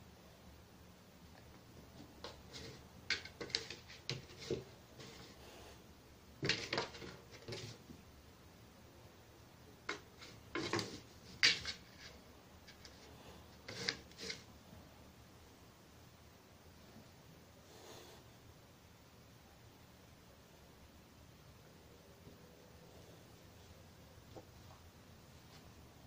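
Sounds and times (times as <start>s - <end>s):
cardboard box scraping on tiles: 2.2s - 5.6s, 6.4s - 7.9s, 9.9s - 14.5s.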